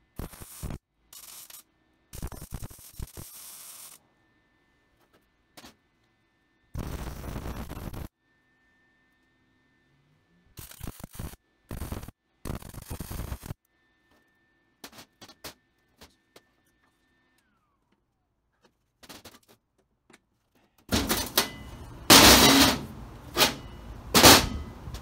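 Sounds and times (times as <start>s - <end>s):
crackling weld noise: 0.0s - 4.1s, 4.7s - 8.2s, 10.4s - 18.0s, 20.3s - 25.0s.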